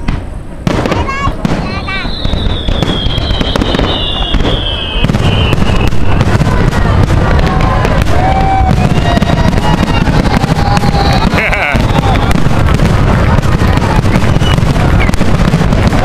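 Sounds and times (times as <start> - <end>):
fireworks bursting and crackling: 0.0 - 16.0
firework whistle falling in pitch: 1.7 - 12.6.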